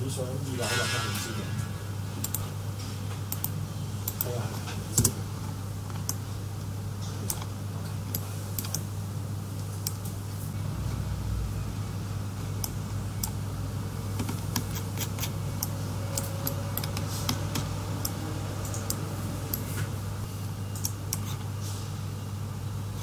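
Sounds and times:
steady low hum: 0.0s - 23.0s
keyboard and mouse clicking: 8.1s - 8.8s, 14.2s - 19.8s.

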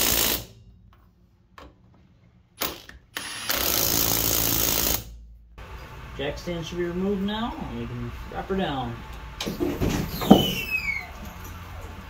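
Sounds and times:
impact wrench bursts: 0.0s - 0.6s, 2.6s - 5.2s.

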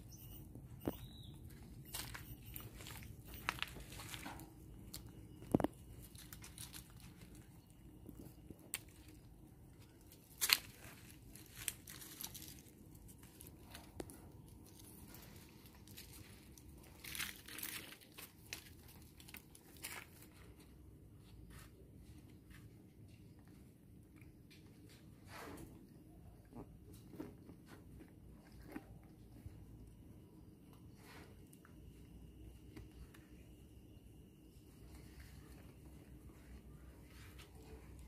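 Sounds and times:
rustling in tree branches: 1.9s - 20.7s.

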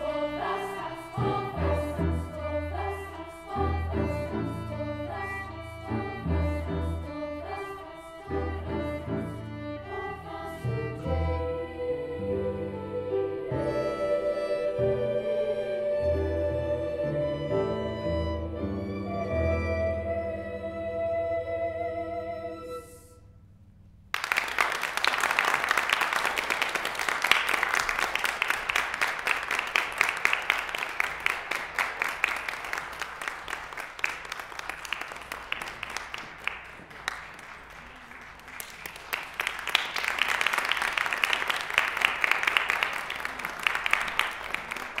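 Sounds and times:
audience applauding: 24.1s - 45.0s.

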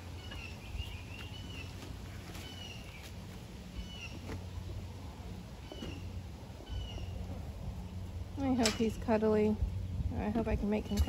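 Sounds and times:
turkey poults peeping: 0.0s - 4.7s.

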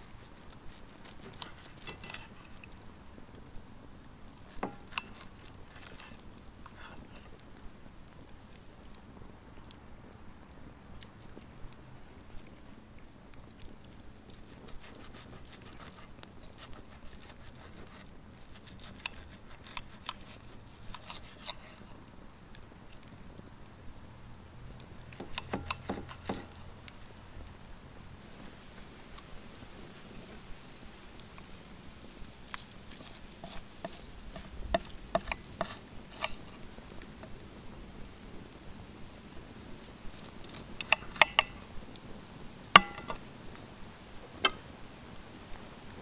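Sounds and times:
knife sawing through steak: 0.9s - 2.6s, 14.7s - 21.9s, 32.3s - 36.6s
cutlery clicking on plate: 1.2s - 2.6s, 4.6s - 6.0s, 25.2s - 26.6s, 33.0s - 36.4s, 40.6s - 41.6s, 42.8s - 43.2s, 44.4s - 44.6s.

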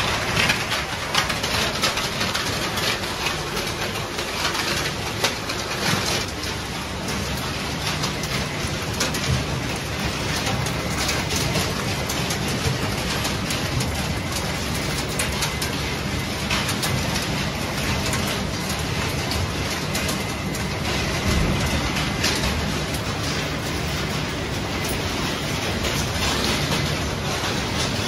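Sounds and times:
scrap rattling on conveyors: 0.0s - 28.0s
machinery drone: 18.6s - 28.0s.

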